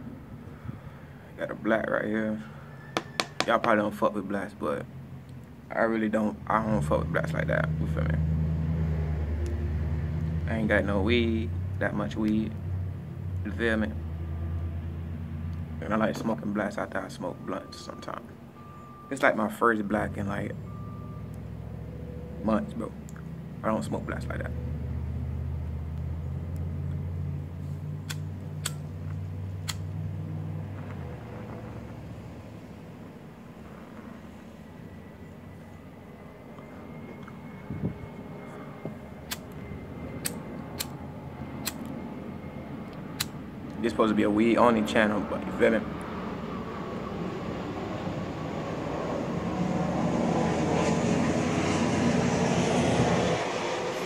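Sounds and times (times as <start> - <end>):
passing engine rumble: 0.0 - 54.0
lighter clicks: 41.6 - 41.9.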